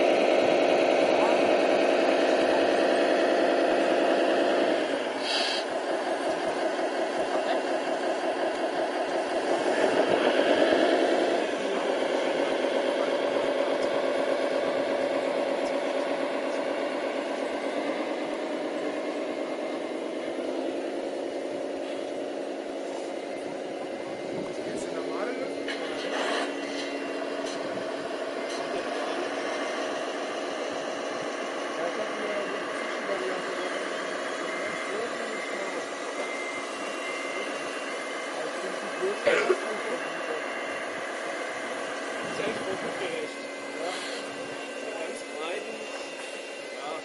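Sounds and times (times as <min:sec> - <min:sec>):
model machines mechanical hum: 0:00.0 - 0:47.0.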